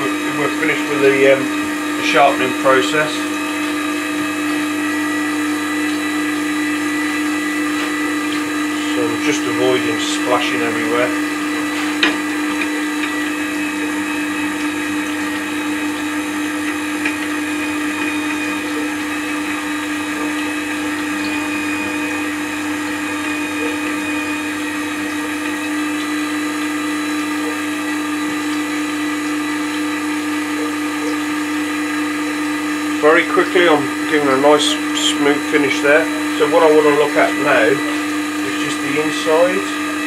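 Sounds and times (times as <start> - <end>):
sharpener motor humming: 0.0 - 40.0.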